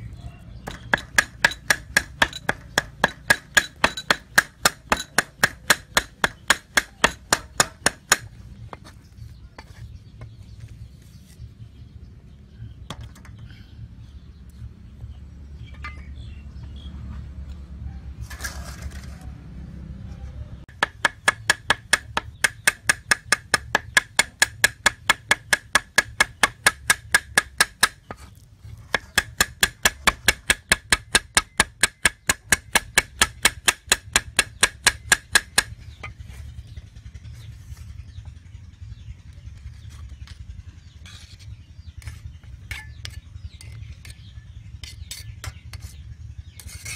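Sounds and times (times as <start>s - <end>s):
cleaver chopping on wooden block: 0.7s - 8.9s, 20.7s - 28.2s, 28.9s - 35.8s.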